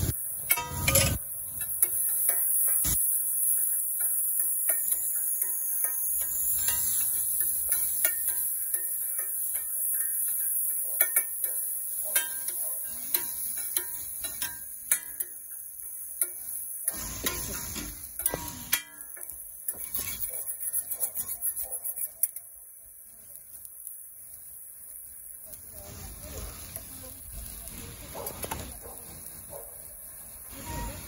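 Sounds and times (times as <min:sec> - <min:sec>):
metal spatulas scraping a griddle: 0:00.0 - 0:22.5, 0:30.5 - 0:31.0.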